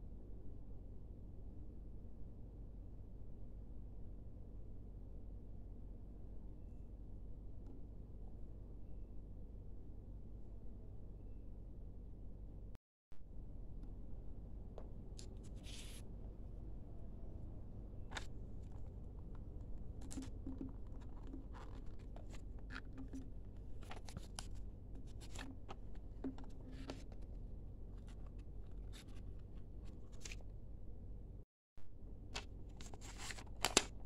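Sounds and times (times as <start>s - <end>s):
low steady hum: 0.0s - 34.0s
cardboard and paper rustling: 18.1s - 27.4s, 28.0s - 30.4s, 32.4s - 34.0s.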